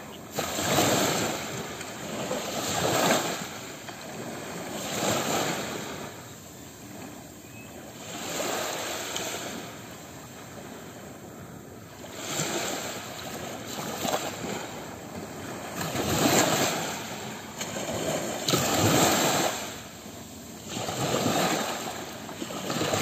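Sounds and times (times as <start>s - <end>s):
ocean waves breaking on sand: 0.0s - 23.0s.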